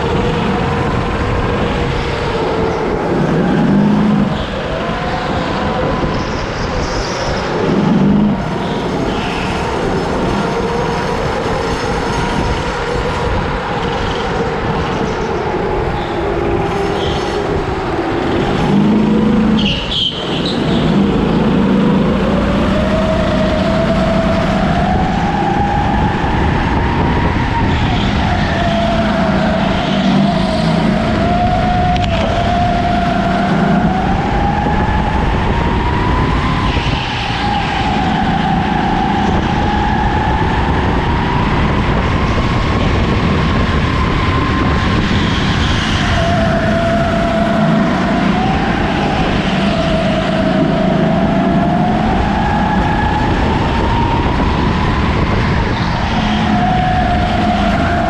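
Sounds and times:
kart engine revving: 0.0 - 58.0
steady rush of noise: 0.0 - 58.0.

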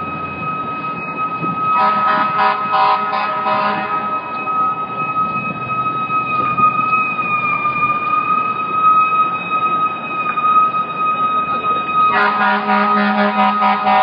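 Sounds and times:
fire truck siren: 0.0 - 14.0
traffic noise: 0.0 - 14.0
deep loud horn blaring: 1.7 - 4.4, 12.1 - 14.0.

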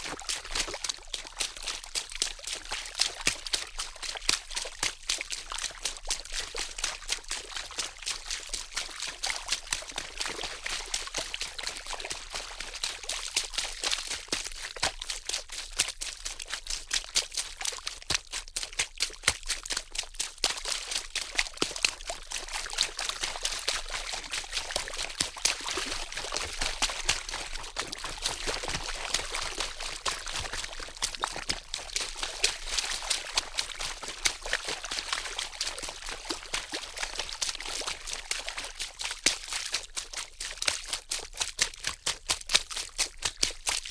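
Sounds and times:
water pouring: 22.1 - 39.0.

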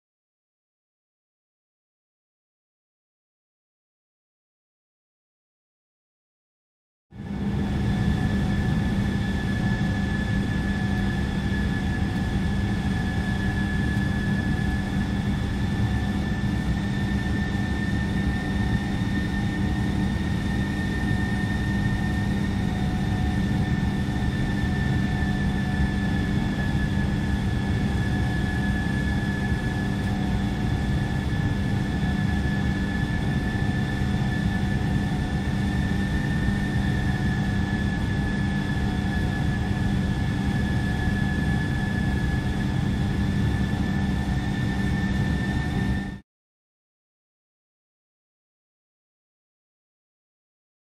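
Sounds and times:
constant high whine: 7.2 - 46.2.

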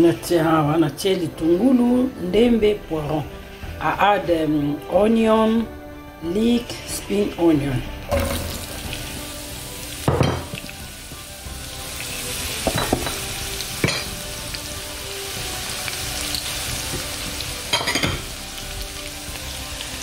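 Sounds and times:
onions sizzling in a frying pan: 8.1 - 20.0.

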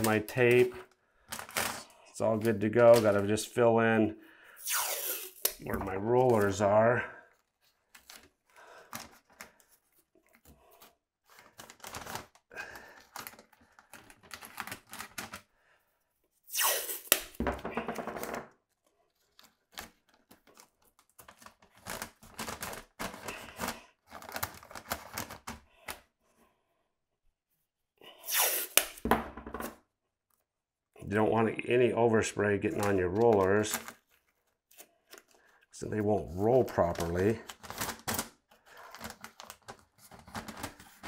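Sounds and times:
tape tearing and crinkling: 4.6 - 5.6, 16.5 - 17.4, 28.3 - 29.0.

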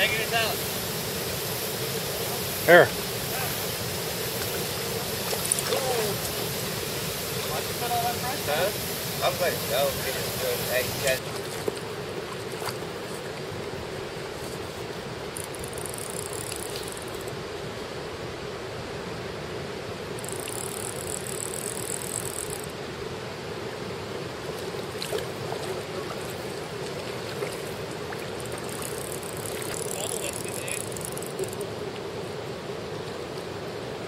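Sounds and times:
faint high-pitched hissing: 0.0 - 11.2, 13.9 - 24.0, 25.4 - 33.4
flowing water rushing: 0.0 - 34.0
small scattered clicks: 15.4 - 17.3, 28.4 - 31.6.

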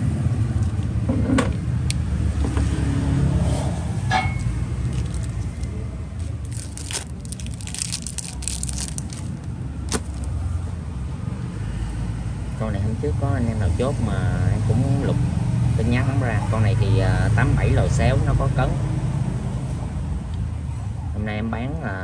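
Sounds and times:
low traffic rumble: 0.0 - 22.0
small clinks and scrapes: 4.1 - 9.3.

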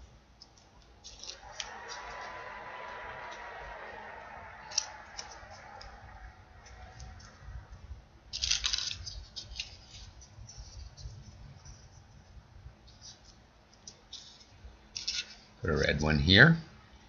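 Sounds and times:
paper rustling and clicking: 0.4 - 1.8, 8.3 - 12.0, 12.9 - 15.4.

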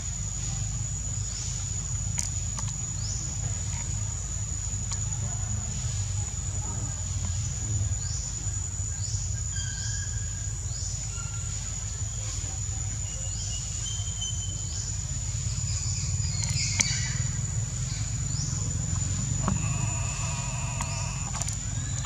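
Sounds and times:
insect drone with chirps: 0.0 - 22.0
low rumble: 15.4 - 22.0
whining animal call: 19.2 - 22.0.

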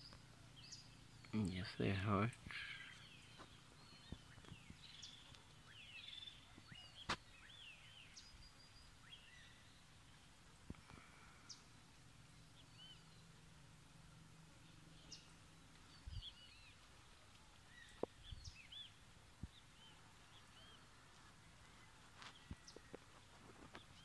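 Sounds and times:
birds chirping and whistling: 2.5 - 9.8, 12.6 - 13.3, 15.0 - 16.8.

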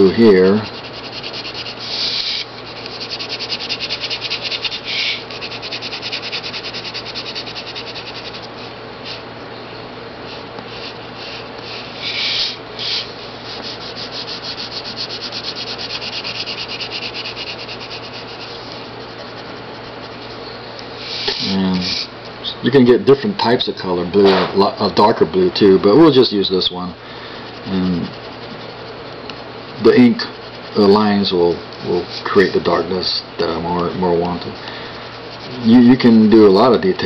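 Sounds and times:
pencil scratching on paper: 0.0 - 9.2, 10.2 - 20.4, 21.0 - 22.1, 24.6 - 37.0.

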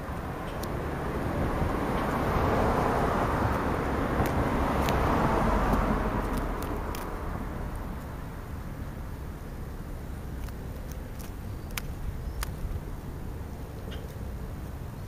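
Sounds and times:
sharp ticks: 0.4 - 0.8, 3.4 - 8.2, 10.3 - 12.8
car passing by: 0.8 - 8.1.

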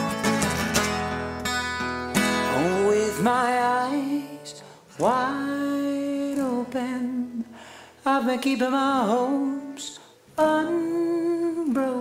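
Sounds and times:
acoustic guitar strummed: 0.0 - 7.4
man singing: 2.4 - 12.0.

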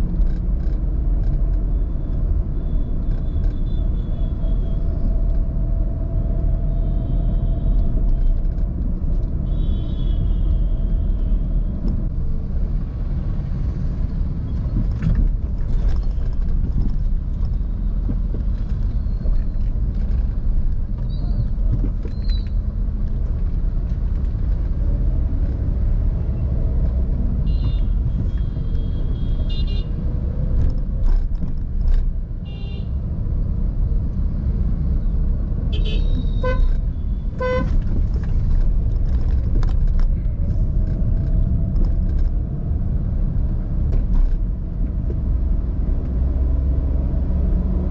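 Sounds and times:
engine and road rumble: 0.0 - 47.9
car horns honking: 35.7 - 37.8.

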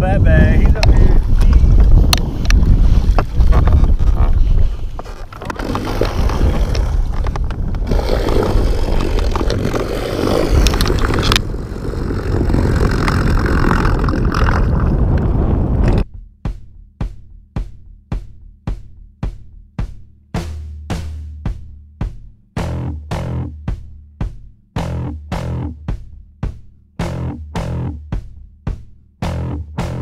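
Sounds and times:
wind buffeting microphone: 0.0 - 16.1
water noise around boat: 1.2 - 16.0
music with steady drum beat: 16.0 - 30.0.

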